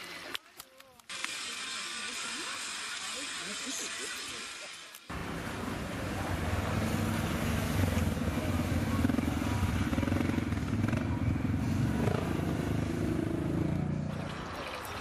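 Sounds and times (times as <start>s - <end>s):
atv engines rumbling past: 5.1s - 15.0s.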